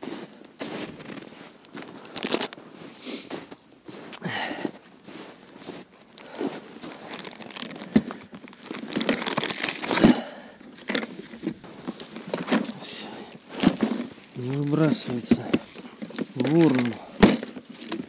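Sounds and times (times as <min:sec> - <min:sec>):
snow crunching underfoot: 0:00.0 - 0:18.0
plastic box scraping: 0:07.1 - 0:10.2, 0:10.8 - 0:18.0.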